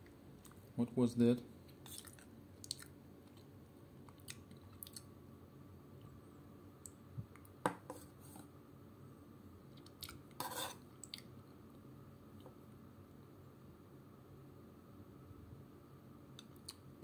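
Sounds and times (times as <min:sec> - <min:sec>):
spoon scraping tin can: 0:10.4 - 0:10.8.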